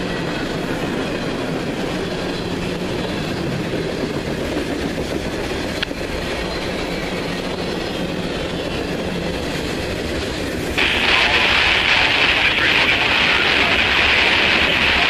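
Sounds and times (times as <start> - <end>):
train wheels rumbling on rails: 0.0 - 15.0.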